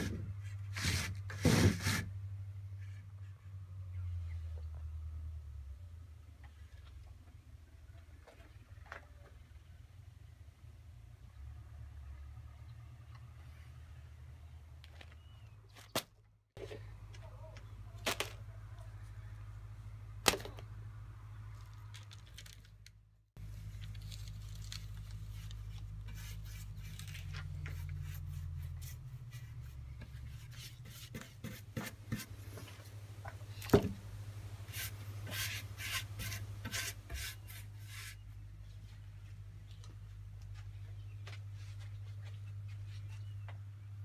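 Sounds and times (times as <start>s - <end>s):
newspaper rustling: 23.4s - 28.3s
low steady hum: 23.4s - 44.0s
paintbrush strokes on wood: 25.2s - 33.0s, 34.6s - 38.2s.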